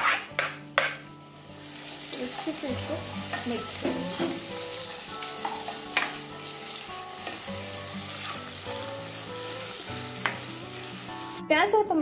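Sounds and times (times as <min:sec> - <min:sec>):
spatula knocking and scraping pan: 0:00.0 - 0:01.0, 0:03.3 - 0:04.5, 0:10.2 - 0:10.5
vegetables sizzling in oil: 0:00.8 - 0:11.4.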